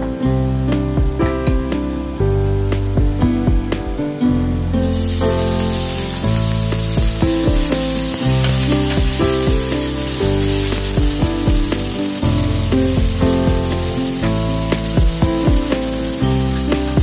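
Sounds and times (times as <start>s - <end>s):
background music with beat: 0.0s - 17.0s
vegetables sizzling in oil: 4.8s - 17.0s.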